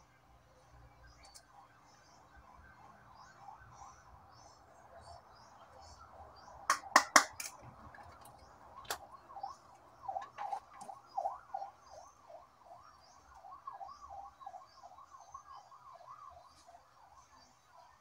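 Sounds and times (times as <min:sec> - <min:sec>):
electronic siren yelping: 0:09.0 - 0:18.0.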